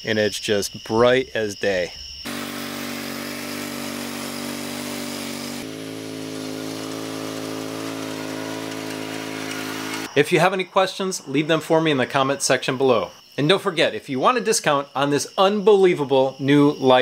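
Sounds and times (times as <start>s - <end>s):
mower engine running: 2.3s - 10.1s.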